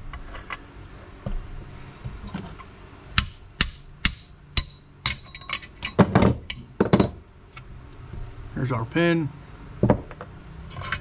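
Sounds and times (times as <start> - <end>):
hammer striking metal punch: 3.2 - 7.2.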